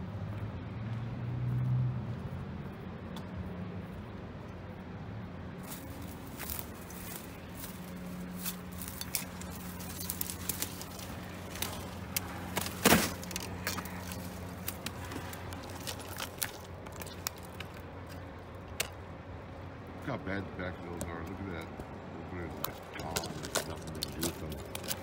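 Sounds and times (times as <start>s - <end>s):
low hum: 0.0s - 25.0s
twigs crackling and snapping: 5.6s - 19.2s, 21.0s - 25.0s.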